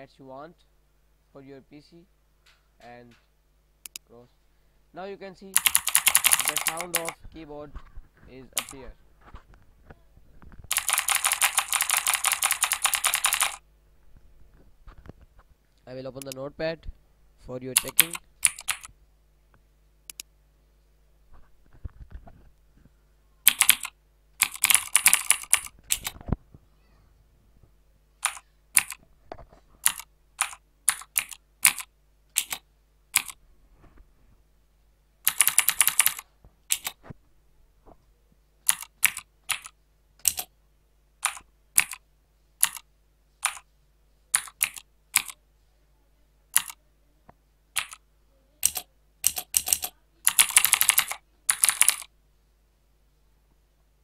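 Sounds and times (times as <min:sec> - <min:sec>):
mechanical keyboard clicks: 0:05.6 - 0:07.2, 0:08.5 - 0:08.8, 0:10.7 - 0:13.6, 0:17.8 - 0:18.9, 0:23.5 - 0:26.2, 0:28.2 - 0:29.0, 0:29.8 - 0:32.6, 0:33.2 - 0:33.4, 0:35.3 - 0:37.0, 0:38.7 - 0:40.5, 0:41.2 - 0:42.0, 0:42.6 - 0:42.8, 0:43.4 - 0:43.6, 0:44.4 - 0:45.4, 0:46.5 - 0:46.8, 0:47.8 - 0:48.0, 0:48.6 - 0:52.1.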